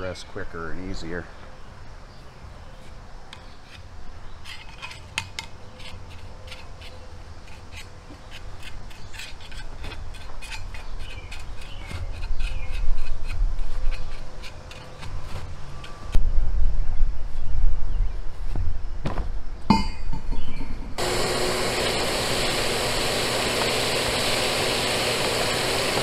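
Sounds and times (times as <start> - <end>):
sand scraping against metal: 2.7 - 16.1.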